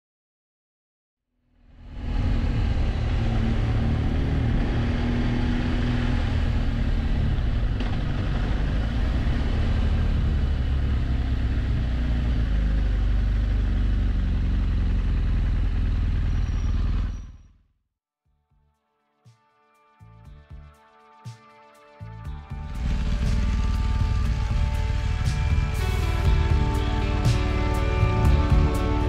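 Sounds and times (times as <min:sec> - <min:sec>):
road noise: 0:01.6 - 0:17.7, 0:22.3 - 0:29.0
motorcycle engine running: 0:01.9 - 0:17.6, 0:22.3 - 0:29.0.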